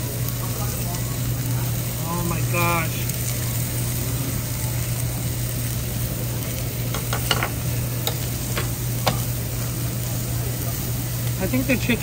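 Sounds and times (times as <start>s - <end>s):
meat sizzling on a grill plate: 0.0s - 12.0s
metal tongs clicking on plate: 7.0s - 9.3s.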